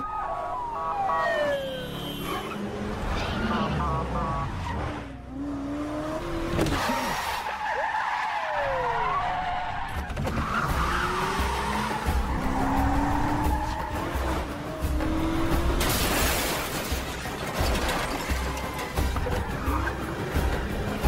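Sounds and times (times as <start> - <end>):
car engines revving hard: 2.2 - 16.0
tyre squeals and skidding: 6.6 - 14.4.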